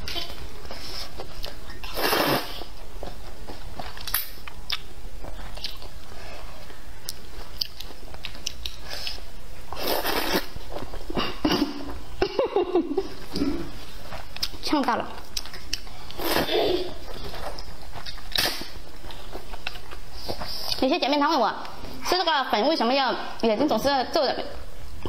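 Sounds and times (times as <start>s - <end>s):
noodles being slurped: 1.8s - 2.7s, 9.0s - 10.6s
chewing with wet mouth clicks: 3.8s - 6.0s, 7.0s - 9.2s, 14.3s - 16.2s, 17.4s - 20.0s.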